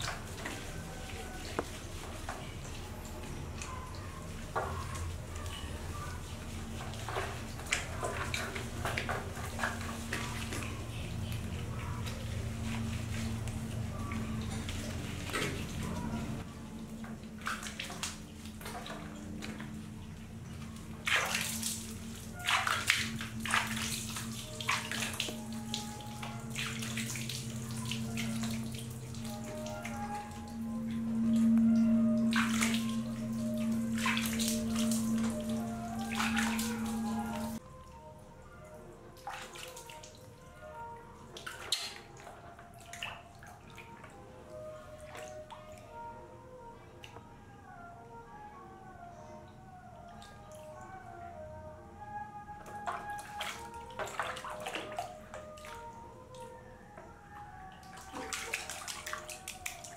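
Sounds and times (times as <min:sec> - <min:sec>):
faint background music: 0:00.0 - 0:59.9
water splashing on tiled floor: 0:04.3 - 0:37.6, 0:41.3 - 0:44.1, 0:52.6 - 0:55.9, 0:57.8 - 0:59.9.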